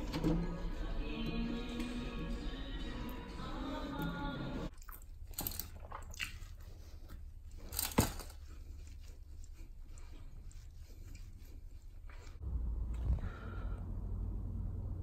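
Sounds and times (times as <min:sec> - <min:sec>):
background music: 0:00.0 - 0:04.7.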